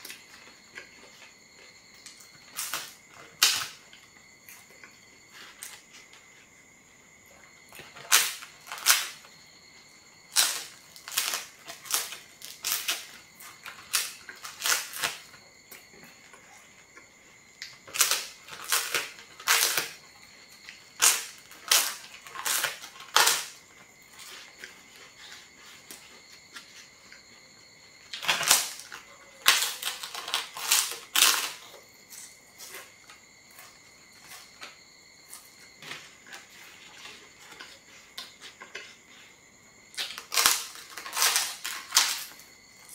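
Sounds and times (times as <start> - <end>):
flatbread crunching: 7.4 - 9.3, 10.3 - 27.4, 28.0 - 39.3, 39.9 - 42.9.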